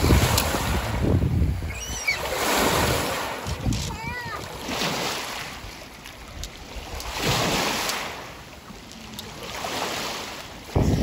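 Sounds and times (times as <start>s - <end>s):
wind rumbling on microphone: 0.0s - 5.0s, 10.5s - 11.0s
waves washing onto pebble shore: 0.0s - 11.0s.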